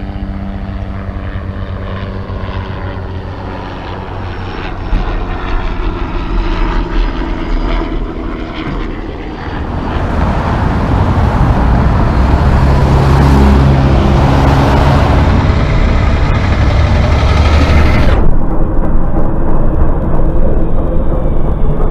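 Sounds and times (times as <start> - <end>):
passing car traffic: 9.0 - 18.4
diesel truck engine humming: 9.3 - 18.3.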